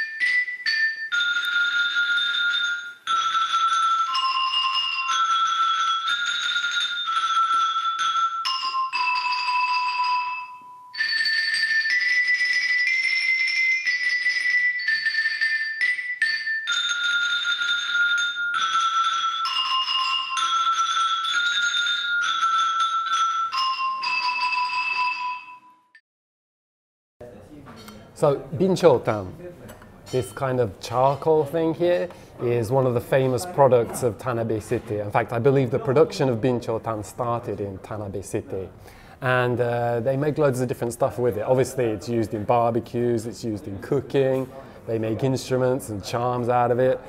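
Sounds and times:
slow xylophone melody with mallets: 0.0s - 26.0s.

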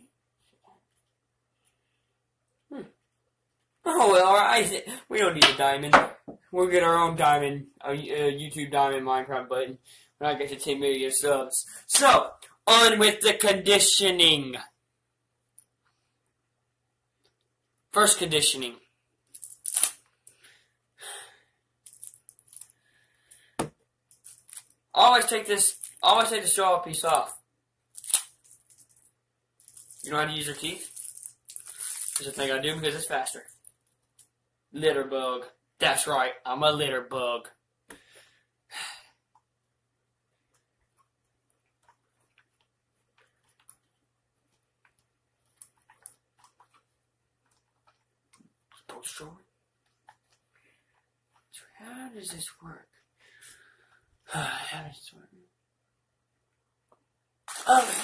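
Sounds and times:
plastic wrapper crinkling: 19.3s - 20.1s, 21.9s - 22.8s, 24.1s - 26.3s, 27.9s - 32.6s, 57.5s - 58.0s.

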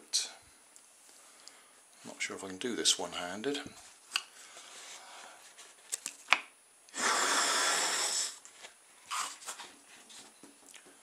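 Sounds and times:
breath blown into balloon: 6.9s - 8.4s.

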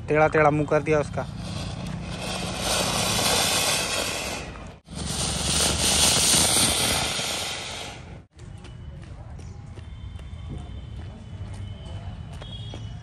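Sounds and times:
firework fountain hissing sparks: 1.3s - 8.3s.

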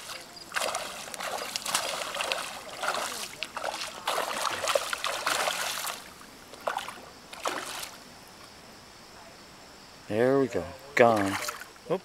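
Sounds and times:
fish splashing at water surface: 0.0s - 8.0s, 11.1s - 11.7s.

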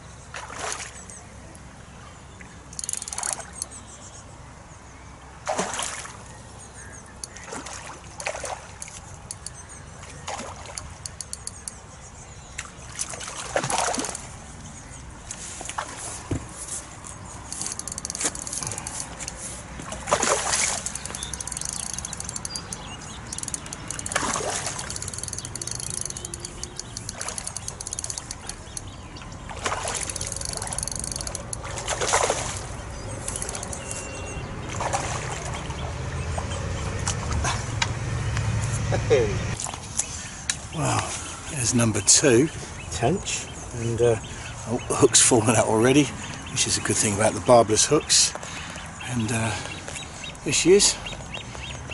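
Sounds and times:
rapid ticking: 10.8s - 11.8s, 17.5s - 19.4s, 20.8s - 28.9s, 30.1s - 31.6s
fish splashing at surface: 19.8s - 21.3s, 23.8s - 25.6s, 29.5s - 33.7s, 34.7s - 35.8s.

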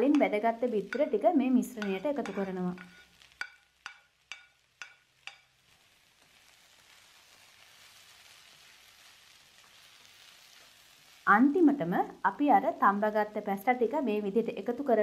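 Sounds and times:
food sizzling: 0.0s - 15.0s
metallic clinks of pan on wok: 1.8s - 5.6s.

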